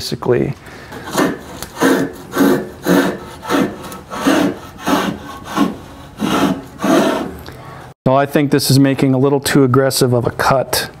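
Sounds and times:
block plane shaving wood: 0.9s - 7.4s.

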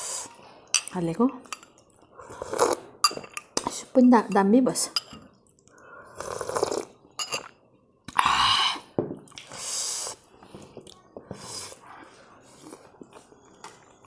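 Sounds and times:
slurping sips of soup: 2.2s - 2.9s, 6.0s - 7.0s.

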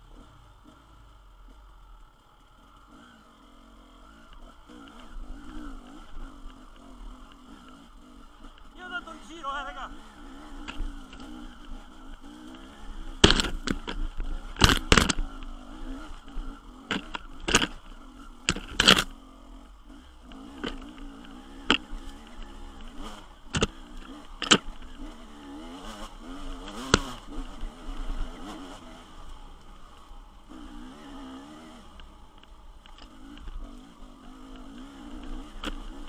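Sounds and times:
off-road motorcycle engine: 0.0s - 36.0s
branches and stones knocking bike: 10.4s - 19.2s, 20.2s - 30.2s, 31.4s - 36.0s.

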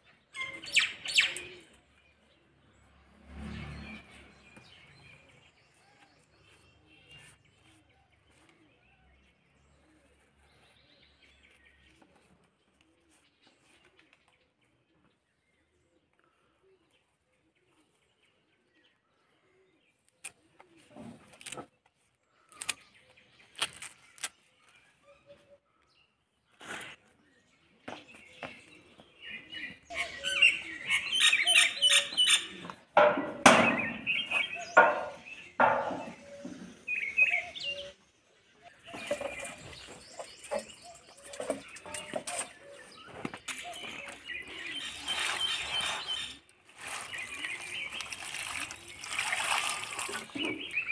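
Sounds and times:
small birds chirping: 3.7s - 50.9s
stems snapping: 22.5s - 22.8s, 23.5s - 24.4s
water pouring over leaves: 44.8s - 50.9s.

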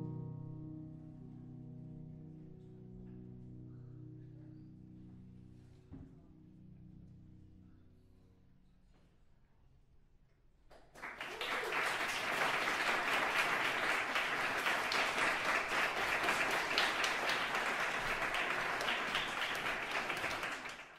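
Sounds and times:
audience applauding: 10.8s - 20.9s.

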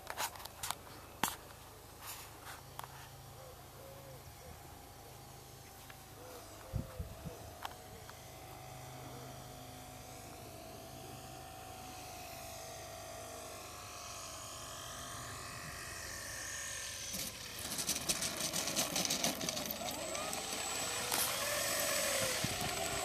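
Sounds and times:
model plane motor whine: 0.1s - 23.0s
plane touching down on grass: 17.1s - 23.0s.

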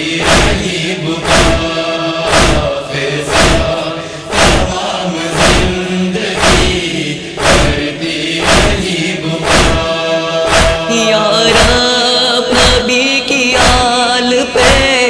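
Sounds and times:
chorus of voices chanting: 0.0s - 15.0s
hands beating on chests: 0.2s - 1.7s, 2.3s - 2.7s, 3.3s - 4.8s, 5.4s - 5.8s, 6.4s - 6.8s, 7.4s - 7.8s, 8.4s - 8.8s, 9.4s - 9.9s, 10.5s - 10.9s, 11.5s - 11.8s.

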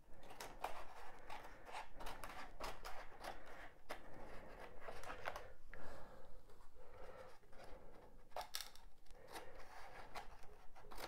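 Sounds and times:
scissors cutting paper: 0.3s - 3.6s, 9.2s - 11.0s.

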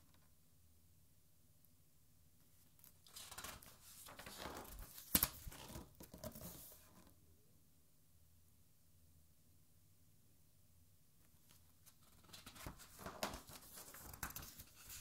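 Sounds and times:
paper rustling: 3.1s - 6.9s, 11.9s - 15.0s.

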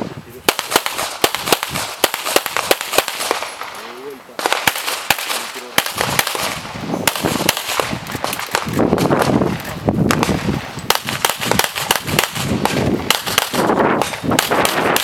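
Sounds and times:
pistol shots: 0.5s - 15.0s.

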